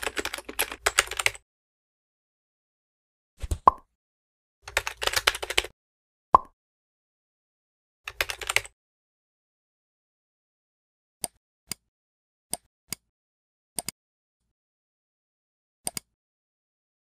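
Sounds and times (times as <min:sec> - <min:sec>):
computer keyboard typing: 0:00.0 - 0:01.4, 0:04.7 - 0:05.7, 0:08.1 - 0:08.8
mouse clicks: 0:12.5 - 0:13.1, 0:13.8 - 0:14.0, 0:15.9 - 0:16.2.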